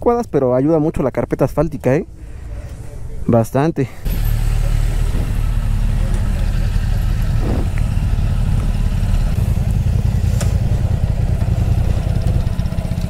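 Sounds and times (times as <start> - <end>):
motorcycle engines idling: 4.0 - 13.0.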